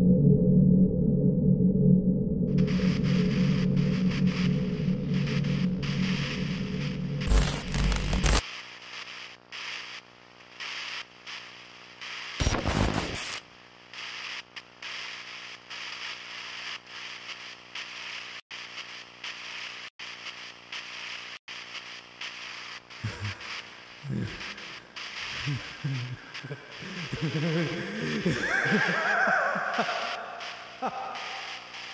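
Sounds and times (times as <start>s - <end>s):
droning tone: 0.0s - 8.3s
pulsing hiss: 2.5s - 8.4s, 21.6s - 31.9s.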